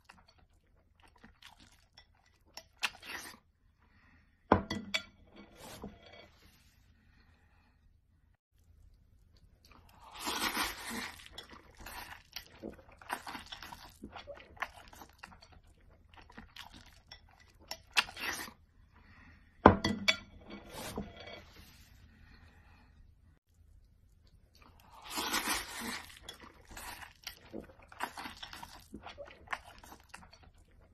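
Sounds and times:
person chewing: 0:00.0 - 0:03.4, 0:08.6 - 0:18.6, 0:23.5 - 0:30.9.

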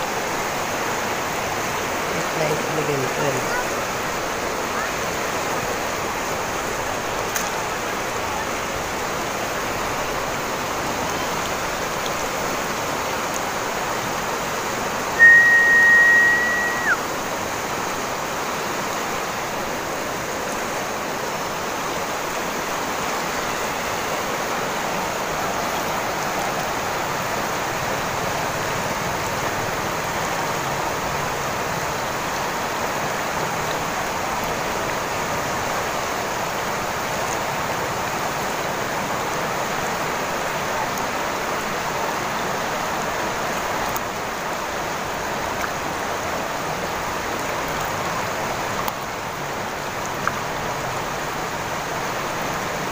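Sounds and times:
river rushing over rocks: 0:00.0 - 0:52.9
high whistle: 0:15.2 - 0:17.1.

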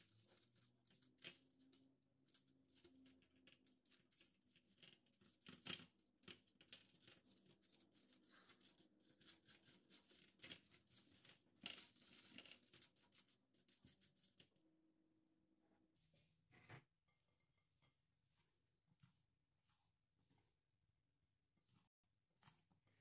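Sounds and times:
pastry brush scratching: 0:00.0 - 0:05.6, 0:06.2 - 0:14.4
paper crinkling: 0:05.2 - 0:14.4.

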